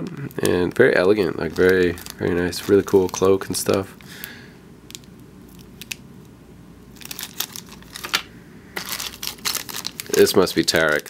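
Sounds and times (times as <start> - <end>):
plastic bags crinkling: 0.3 - 4.1, 7.0 - 11.0.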